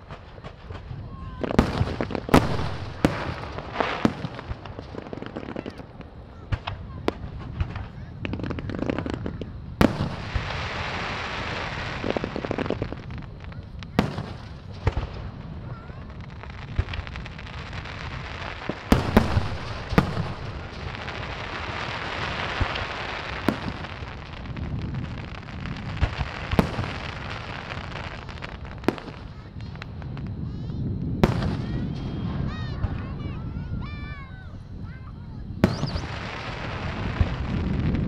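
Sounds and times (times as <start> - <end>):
hissing firework crackle: 0.0 - 38.0
firework shells bursting: 9.2 - 33.2, 35.6 - 38.0.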